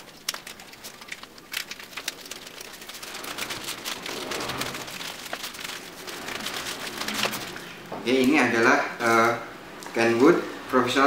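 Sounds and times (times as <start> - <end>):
plastic crinkling as peeled open: 0.0 - 8.3.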